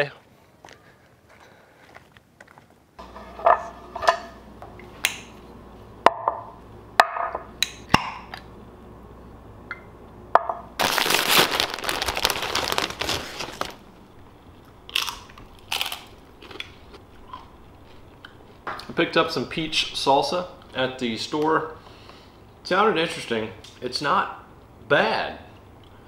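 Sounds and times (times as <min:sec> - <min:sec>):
tortilla chips being crunched: 0:10.8 - 0:13.8, 0:14.9 - 0:16.8
loud crackling noise: 0:10.8 - 0:14.0.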